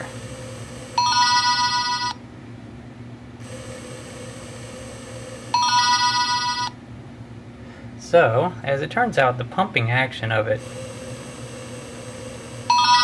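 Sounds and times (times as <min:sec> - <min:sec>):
small electric pump whining: 0:00.0 - 0:02.2, 0:03.4 - 0:06.8, 0:10.6 - 0:13.0.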